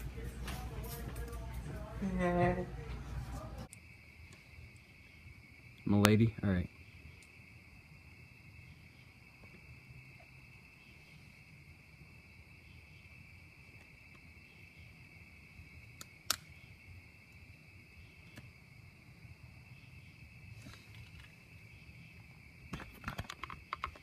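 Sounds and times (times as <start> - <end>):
crickets trilling: 3.7 - 24.0.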